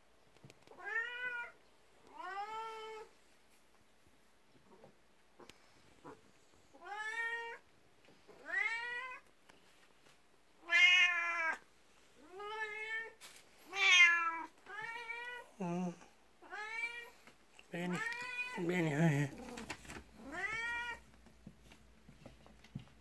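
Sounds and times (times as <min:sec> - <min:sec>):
cat meowing: 0:00.7 - 0:03.1, 0:10.6 - 0:11.6, 0:12.2 - 0:15.5, 0:16.4 - 0:17.1, 0:17.9 - 0:18.7, 0:19.3 - 0:21.0.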